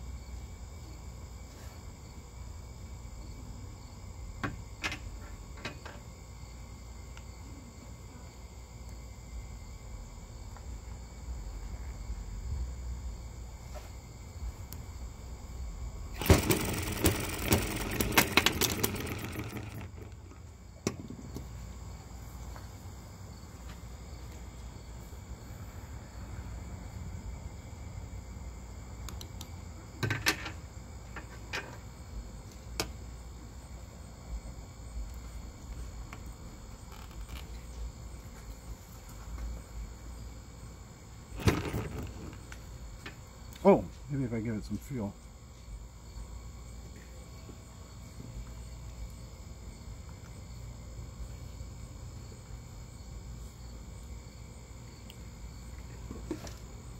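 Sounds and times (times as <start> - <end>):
crickets chirping: 0.0 - 56.9
model engine clicking and clattering: 16.2 - 20.4, 41.4 - 42.4.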